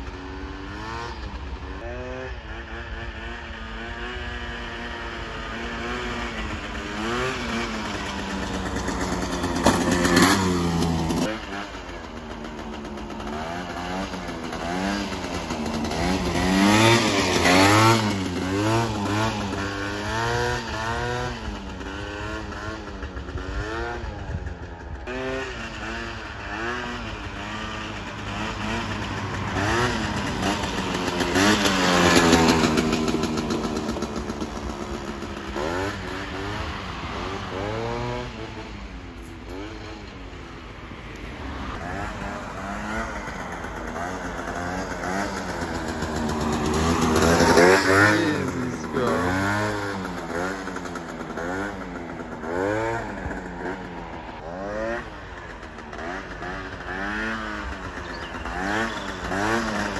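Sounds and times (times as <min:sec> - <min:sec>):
scooter engine revving past: 0:00.0 - 0:59.9.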